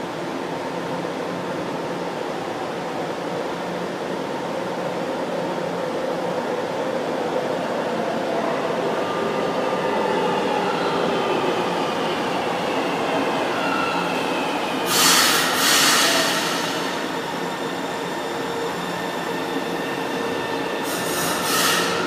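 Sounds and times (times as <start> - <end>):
loud rush of train noise: 0.0 - 22.0
train wheels rumbling on rail: 9.1 - 22.0.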